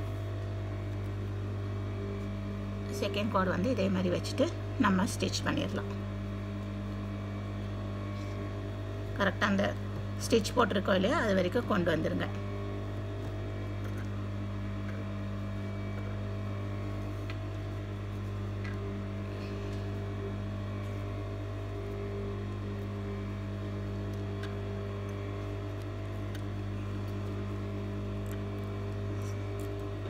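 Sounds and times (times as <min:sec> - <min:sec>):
sewing machine motor hum: 0:00.0 - 0:30.0.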